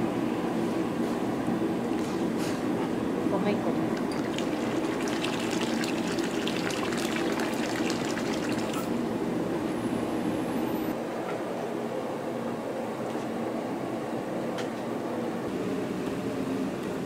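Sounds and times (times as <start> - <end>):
low kitchen hum: 0.0 - 11.6
tap water splashing into a wok: 4.2 - 8.9.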